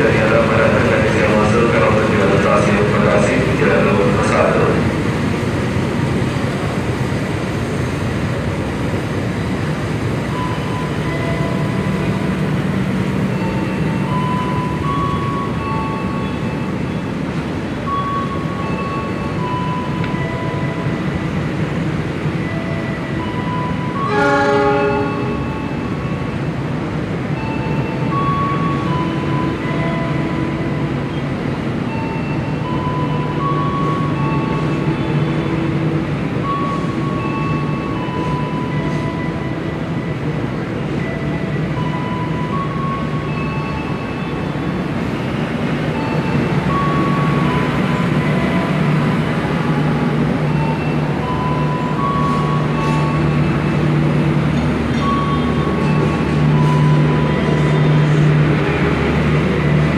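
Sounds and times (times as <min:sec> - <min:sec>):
train coaches rumbling past: 0:00.0 - 0:59.9
train horn tone: 0:24.0 - 0:25.6.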